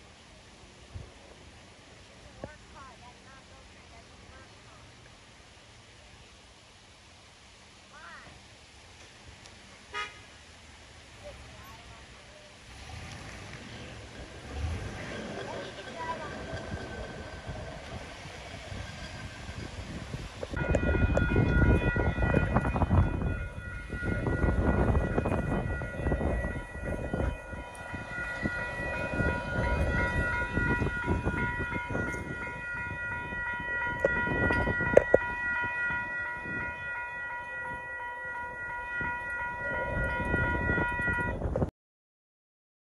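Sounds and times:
loud uneven low rumble: 11.1 - 35.3
level crossing warning bell: 14.0 - 41.5.

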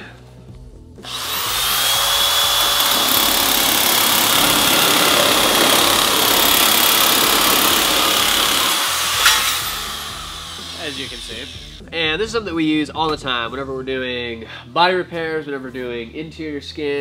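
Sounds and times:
sheet metal nibbler cutting: 1.1 - 11.2.

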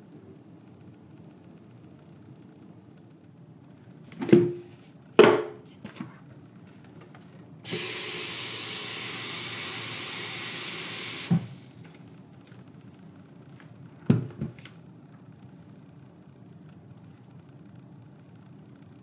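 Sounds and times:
tap water running into plastic tank: 7.7 - 12.0.

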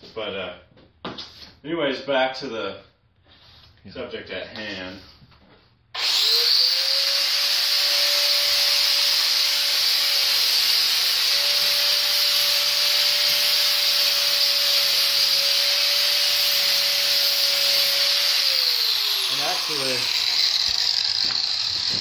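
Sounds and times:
power drill motor whine: 6.0 - 22.0.

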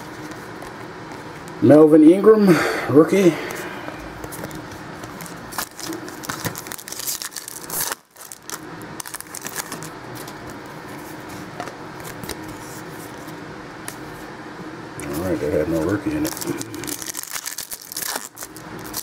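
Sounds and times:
cards rustling: 4.2 - 14.2, 15.1 - 19.0
foil wrapper tearing and crackling: 5.2 - 10.7, 16.1 - 19.0.

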